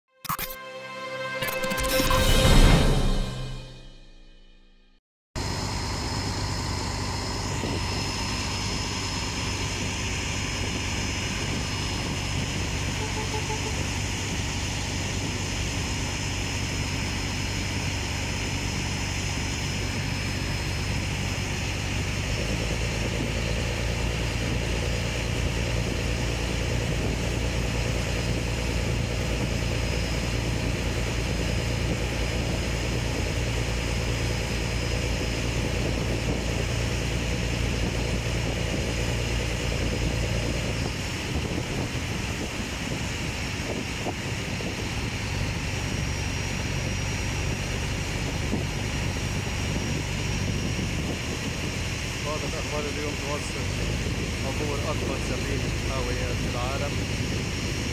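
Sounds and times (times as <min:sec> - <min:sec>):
motorboat engine drone: 0:05.4 - 0:57.9
water rushing along hull: 0:13.8 - 0:57.9.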